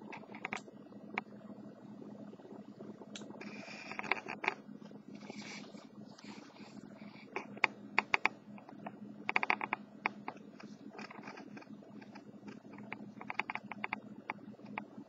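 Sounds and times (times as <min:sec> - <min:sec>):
low steady hum: 0:00.0 - 0:15.0
sharp clicks and taps: 0:07.4 - 0:10.4.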